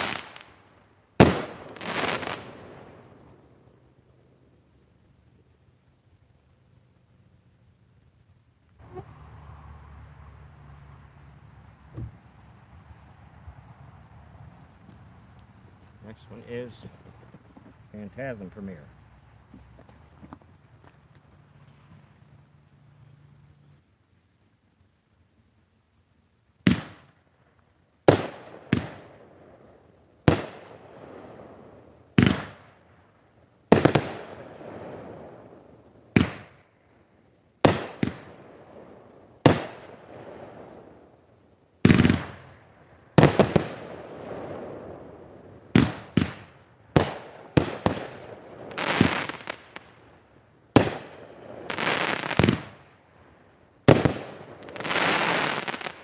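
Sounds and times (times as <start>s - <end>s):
firework bangs: 0.0s - 3.5s, 26.6s - 27.2s, 28.0s - 29.6s, 30.2s - 32.8s, 33.7s - 36.7s, 37.6s - 41.0s, 41.8s - 50.0s, 50.7s - 53.0s, 53.8s - 56.0s
firework crackle: 0.0s - 8.0s, 8.6s - 22.6s, 26.6s - 56.0s.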